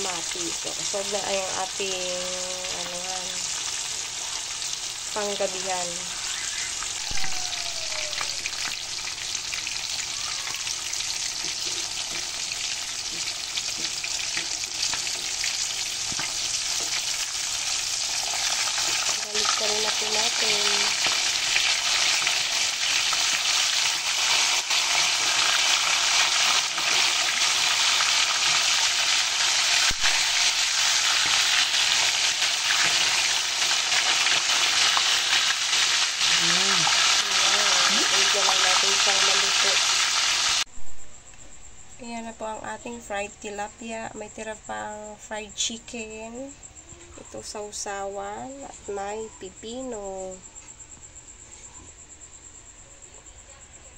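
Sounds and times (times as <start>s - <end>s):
fish deep-frying in oil: 0.0s - 40.7s.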